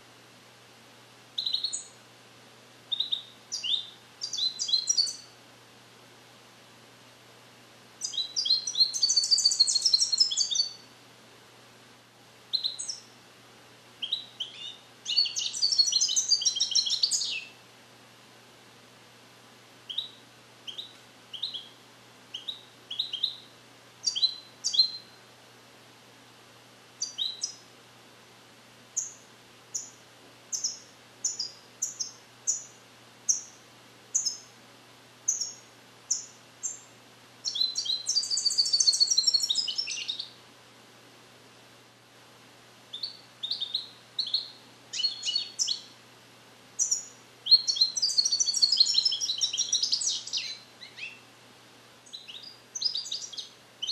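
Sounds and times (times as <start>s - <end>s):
goldfinch singing: 1.4s - 2.0s, 2.9s - 5.3s, 8.0s - 10.8s, 12.5s - 13.1s, 14.0s - 17.5s, 19.9s - 25.2s, 27.0s - 27.6s, 29.0s - 32.7s, 33.3s - 33.6s, 34.2s - 34.5s, 35.3s - 40.3s, 42.9s - 45.9s, 46.8s - 51.2s, 52.1s - 53.9s.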